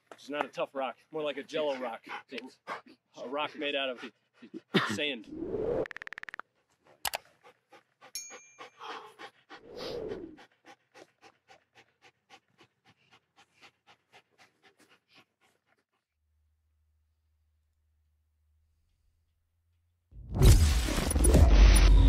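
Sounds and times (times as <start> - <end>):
dog panting: 0.6 - 5.1, 6.5 - 16.2.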